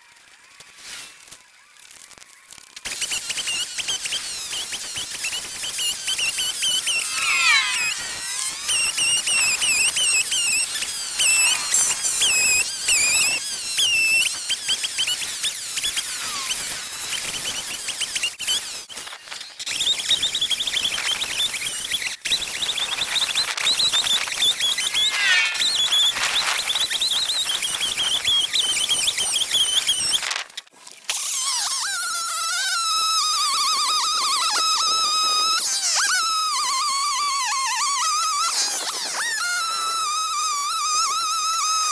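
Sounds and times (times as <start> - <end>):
chainsaw revving: 3.0 - 17.1.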